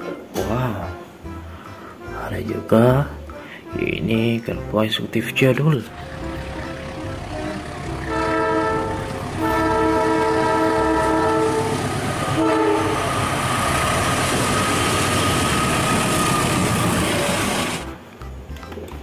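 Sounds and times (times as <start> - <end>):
train passing: 1.2 - 18.1
locomotive chime horn: 5.8 - 13.3.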